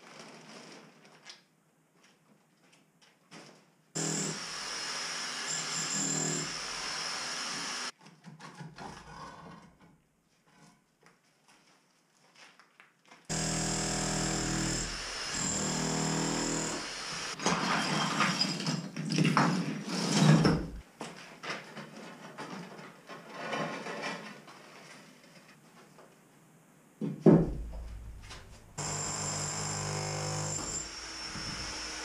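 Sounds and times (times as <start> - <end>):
electric demolition hammer chiselling: 4.0 - 7.9, 13.3 - 17.4, 27.5 - 32.0.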